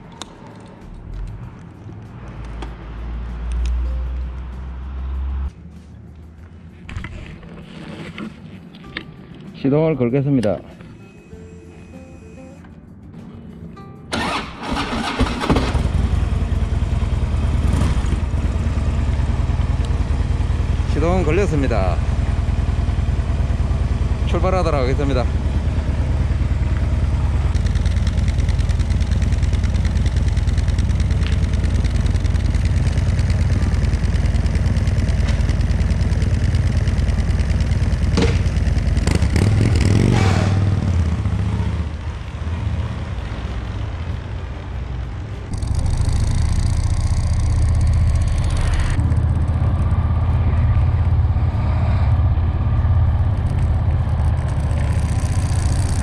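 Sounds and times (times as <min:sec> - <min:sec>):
motorcycle engine thumping: 0:25.4 - 0:40.8.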